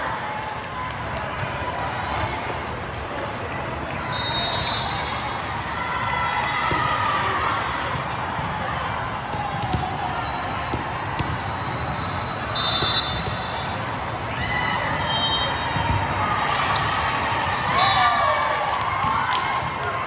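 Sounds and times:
hubbub of voices: 0.0 - 20.0
volleyballs bouncing and hit: 5.2 - 18.0.

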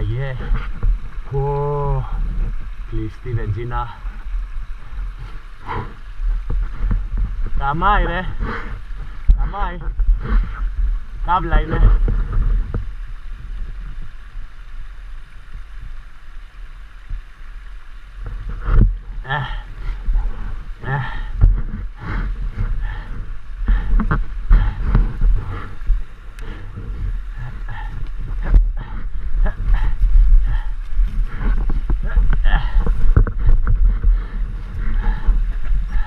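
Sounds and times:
wind rumble on microphone: 0.0 - 36.0
heavy breathing and grunts: 5.6 - 6.0, 7.6 - 12.1, 19.2 - 36.0.

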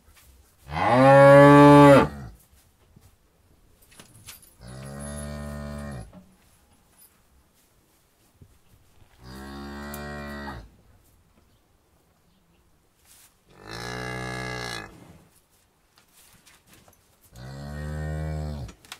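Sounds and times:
cow mooing: 0.7 - 2.2.

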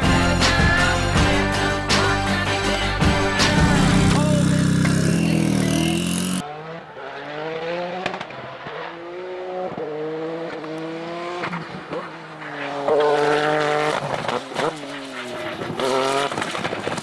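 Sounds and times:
race car engine accelerating: 3.5 - 16.8.

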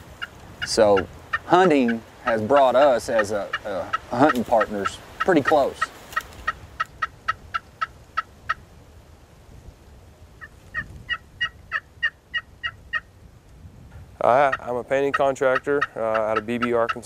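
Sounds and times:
turkey yelping: 0.2 - 8.6, 10.4 - 13.1, 15.5 - 17.0.

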